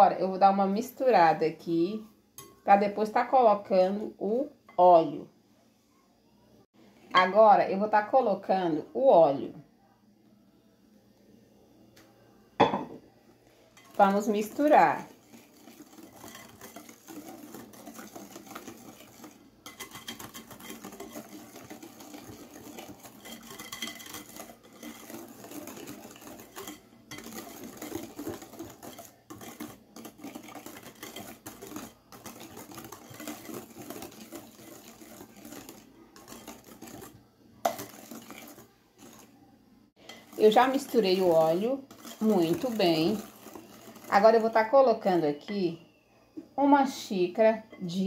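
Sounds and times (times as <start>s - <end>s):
whisk rattling in glass bowl: 13.8s - 39.3s, 40.1s - 45.2s.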